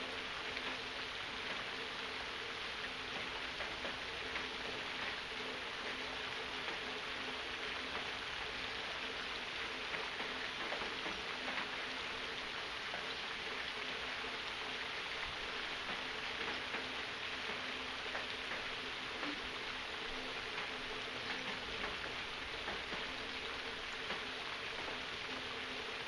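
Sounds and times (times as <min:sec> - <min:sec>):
faint steady hum: 0:00.0 - 0:26.0
steady rain falling: 0:00.0 - 0:26.0.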